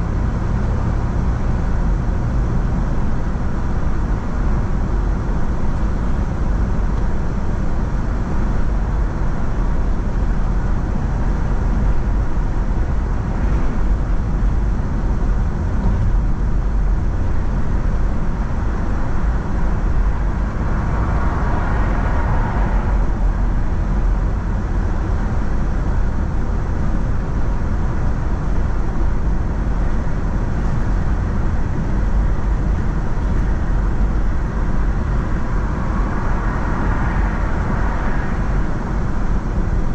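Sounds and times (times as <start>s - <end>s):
road and tyre rumble: 0.0s - 39.9s.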